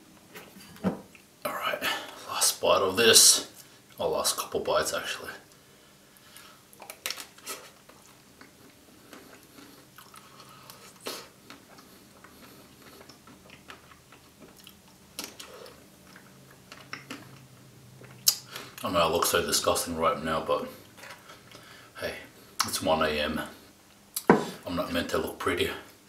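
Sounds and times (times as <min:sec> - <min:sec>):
biting and chewing ice cream: 0:06.4 - 0:18.9.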